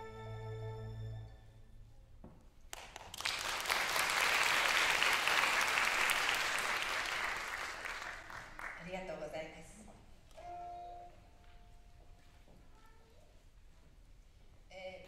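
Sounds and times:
audience applauding: 0:02.7 - 0:08.8.

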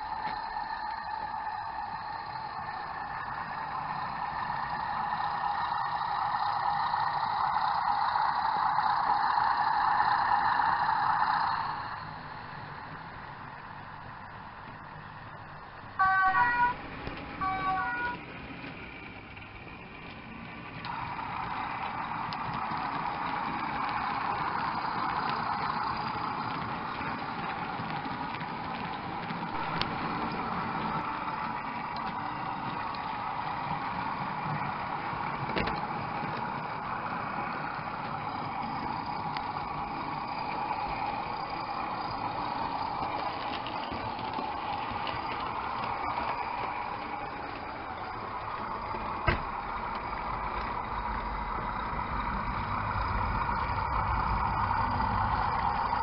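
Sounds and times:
diesel locomotive engine from small speaker: 0:00.0 - 0:56.0.

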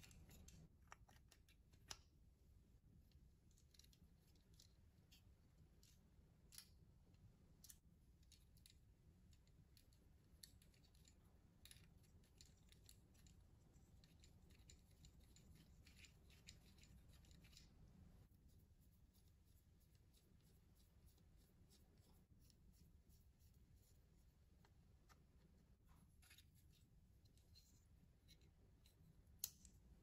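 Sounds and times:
small plastic clicks and scratches: 0:00.0 - 0:02.1, 0:07.6 - 0:17.9.

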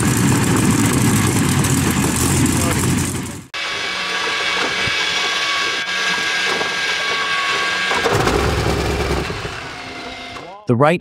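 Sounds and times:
engine firing low rumble: 0:00.0 - 0:03.6
aircraft engine starter whine: 0:00.0 - 0:10.6.

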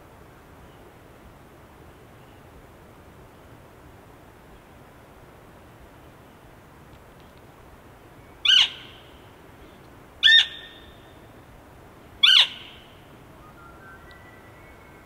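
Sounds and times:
elk calling with high mews: 0:08.4 - 0:08.9, 0:10.2 - 0:10.8, 0:12.2 - 0:12.9.

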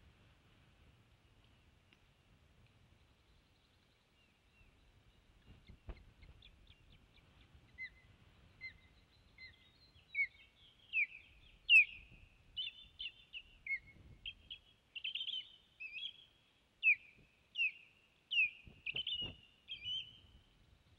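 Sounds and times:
osprey whistled alarm calls: 0:07.8 - 0:20.3.

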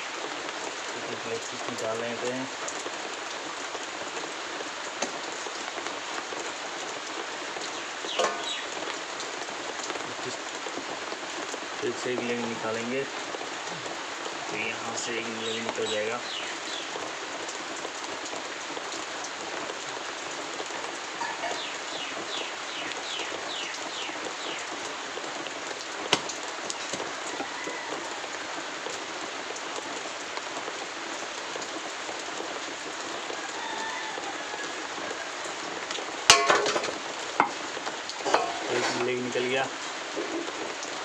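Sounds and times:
steady hiss: 0:00.0 - 0:17.2, 0:35.6 - 0:41.0.

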